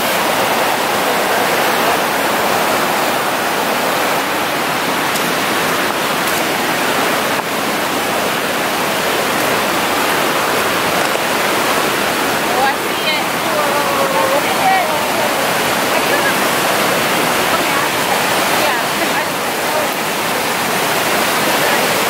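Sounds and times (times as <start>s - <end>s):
creek rushing over rocks: 0.0s - 22.0s.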